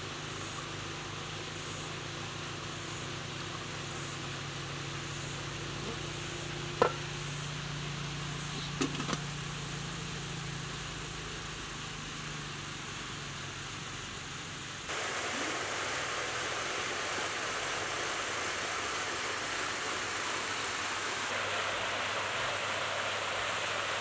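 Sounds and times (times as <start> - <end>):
bright even hiss: 0.0 - 24.0.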